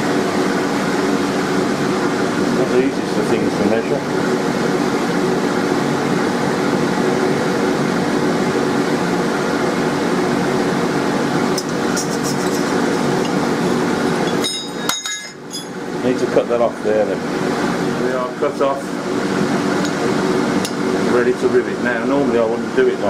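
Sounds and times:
fan motor humming: 0:00.0 - 0:23.0
metal clinking on anvil: 0:14.3 - 0:15.8.

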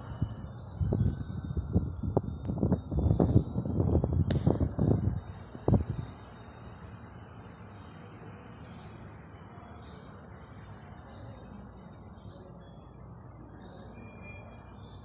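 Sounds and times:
steady low background noise: 0:00.0 - 0:15.0
faint bird chirps: 0:05.1 - 0:15.0.

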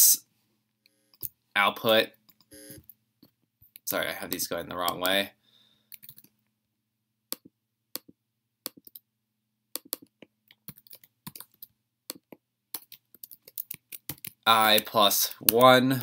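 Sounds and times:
computer keyboard typing: 0:06.0 - 0:06.3, 0:09.8 - 0:15.8.

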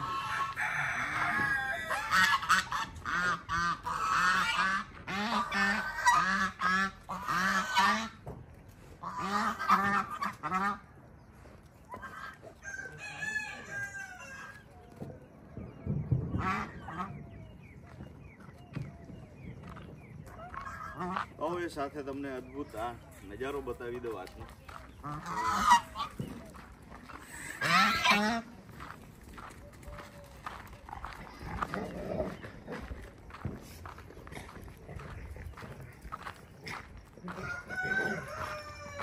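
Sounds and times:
geese honking: 0:00.0 - 0:08.3, 0:09.0 - 0:11.0, 0:11.9 - 0:14.7, 0:16.1 - 0:17.4, 0:19.7 - 0:22.9, 0:24.7 - 0:28.9, 0:35.0 - 0:39.0.

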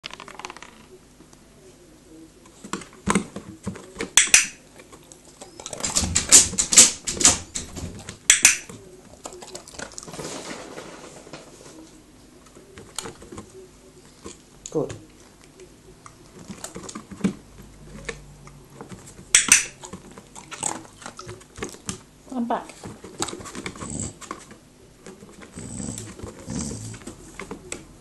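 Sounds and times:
dog claws tapping on wooden floor: 0:05.7 - 0:08.6
dog grumbling: 0:23.6 - 0:24.3, 0:25.4 - 0:27.2.

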